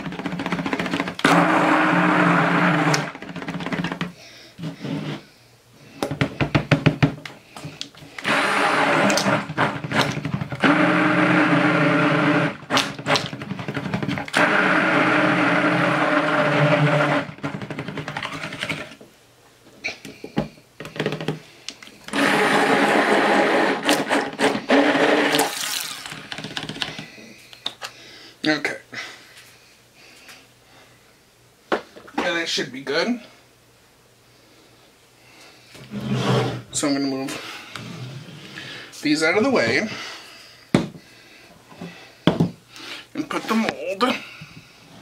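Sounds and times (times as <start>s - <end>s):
stick blender running: 0.0s - 4.1s, 8.1s - 19.0s, 22.1s - 26.8s
blender clicks: 1.2s - 3.2s, 8.2s - 13.3s.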